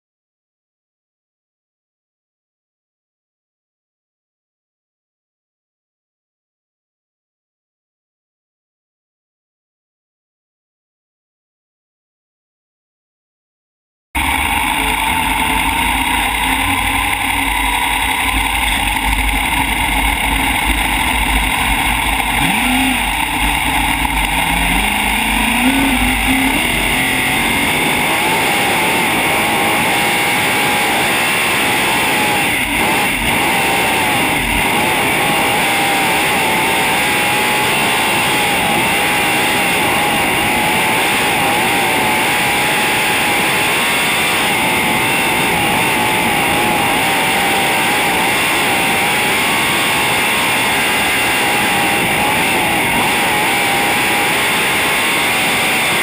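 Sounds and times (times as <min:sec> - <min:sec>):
race car engine roaring: 0:14.2 - 0:56.0.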